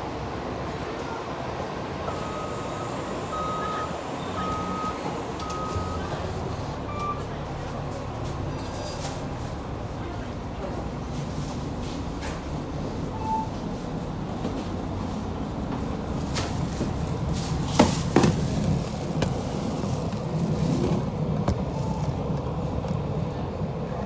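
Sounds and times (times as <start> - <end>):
bus engine and road rumble: 0.0 - 24.0
brief beep: 2.1 - 6.2, 6.9 - 7.3, 13.2 - 13.6
bus body rattling knocks: 15.7 - 19.4.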